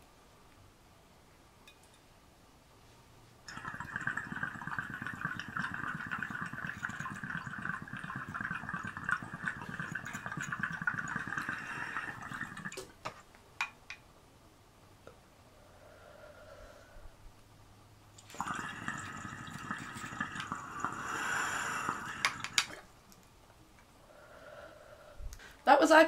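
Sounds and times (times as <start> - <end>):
water bubbling through glass: 3.5 - 12.9, 18.3 - 22.9.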